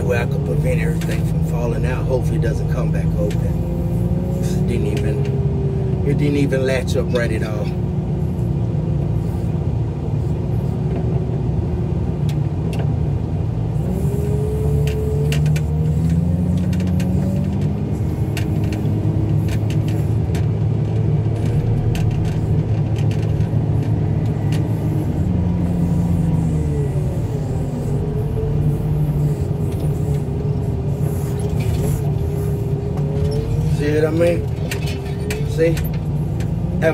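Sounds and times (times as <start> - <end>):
heavy loader engine under load: 0.0 - 36.9.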